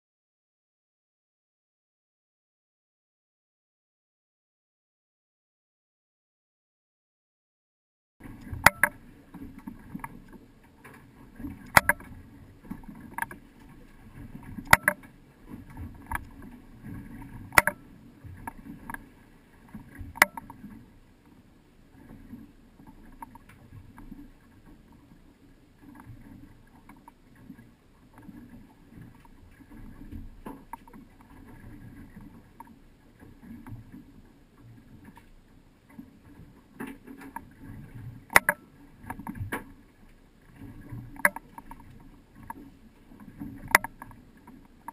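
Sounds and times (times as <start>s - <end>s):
low rumble of wind and water: 8.2s - 44.9s
scattered clicks: 14.7s - 15.0s, 38.3s - 39.3s.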